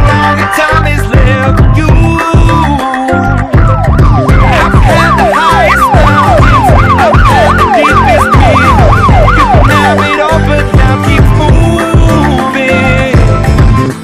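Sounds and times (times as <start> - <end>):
music with heavy beat: 0.0 - 14.0
electronic yelp siren: 3.2 - 10.5.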